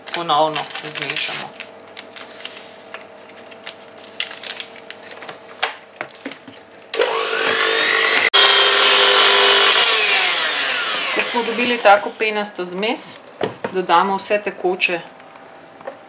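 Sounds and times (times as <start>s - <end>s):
paper sachet rustling and tearing: 0.0s - 6.7s
electric hand mixer whining: 7.0s - 12.3s.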